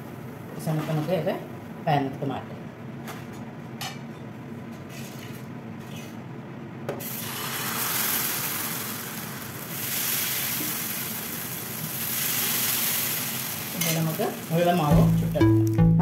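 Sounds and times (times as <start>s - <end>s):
batter sizzling in a hot pan: 7.0s - 15.4s.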